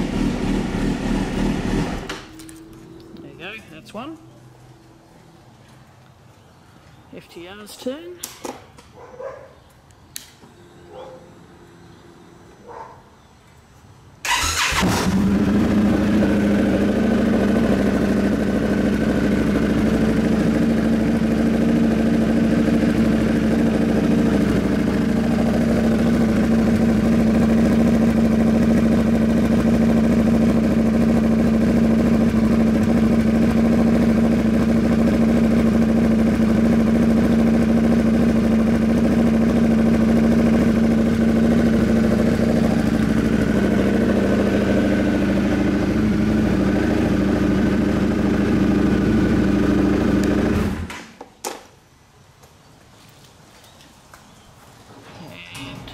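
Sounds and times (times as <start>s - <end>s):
motorcycle engine idling: 0.0s - 3.3s, 14.3s - 50.8s.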